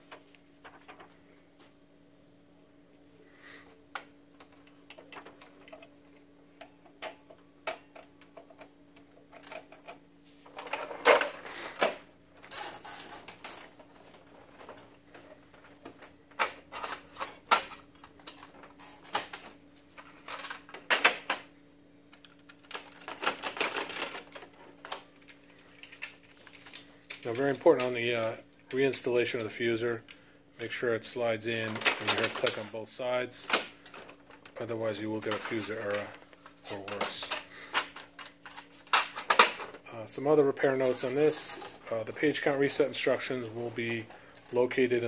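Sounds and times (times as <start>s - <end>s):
faint steady hum: 0.0s - 45.0s
printer parts clicking and rattling: 4.4s - 21.5s, 22.1s - 27.9s, 31.6s - 32.8s, 35.2s - 39.8s.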